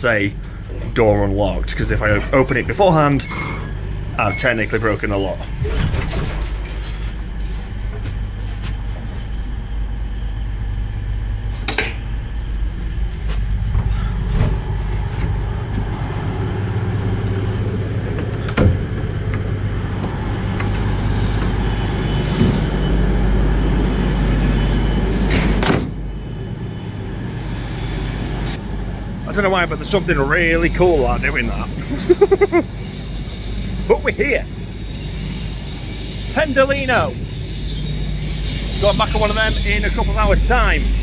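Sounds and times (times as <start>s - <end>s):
train low hum: 0.0s - 41.0s
high-pitched ringing tone: 1.5s - 6.0s, 26.1s - 41.0s
train door clunks and knocks: 18.1s - 21.6s.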